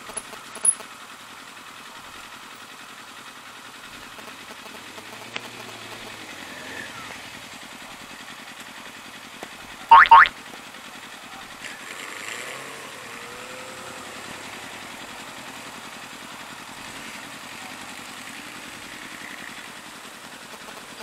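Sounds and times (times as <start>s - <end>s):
motorcycle engines idling: 0.0s - 21.0s
motorcycle pulling away: 3.7s - 9.4s, 10.5s - 20.9s.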